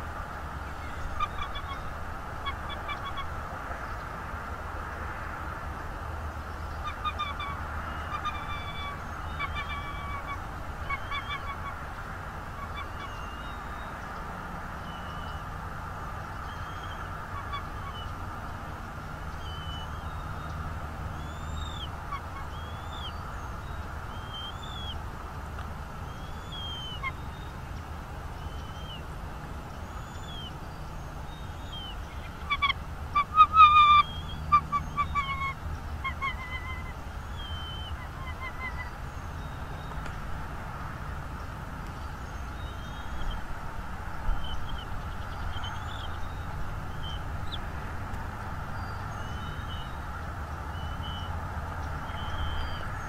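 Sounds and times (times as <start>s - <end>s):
songbird singing: 0.0s - 53.0s
eagle piping chirps: 6.7s - 11.8s, 19.3s - 20.6s, 21.2s - 25.0s, 26.1s - 27.6s, 28.4s - 29.1s, 29.8s - 40.2s, 52.0s - 52.9s.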